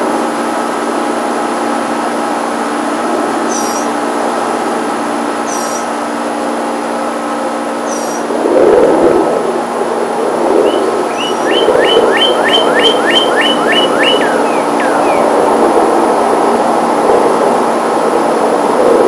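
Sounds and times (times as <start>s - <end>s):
aircraft engine drone: 0.0s - 19.0s
bird whistling: 3.5s - 3.9s, 5.5s - 5.9s, 7.9s - 8.3s, 10.6s - 15.4s.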